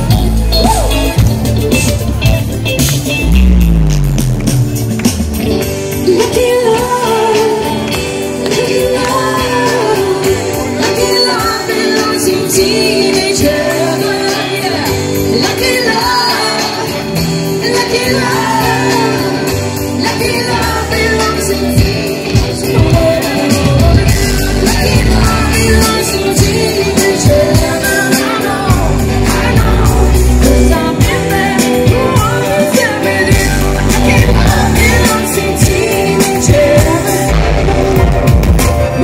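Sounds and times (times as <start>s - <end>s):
live pop band: 0.0s - 39.0s
lead singer singing: 5.9s - 39.0s.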